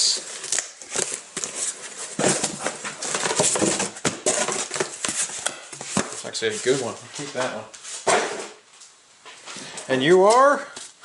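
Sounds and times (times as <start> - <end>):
cardboard flaps scraping and rustling: 0.2 - 7.0.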